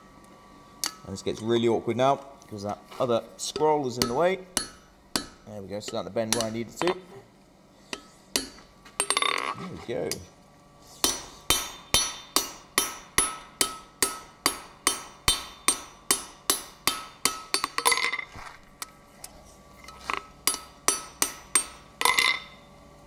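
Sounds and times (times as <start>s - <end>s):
hammer ringing on steel: 3.5s - 6.6s, 11.0s - 18.1s, 20.4s - 22.6s.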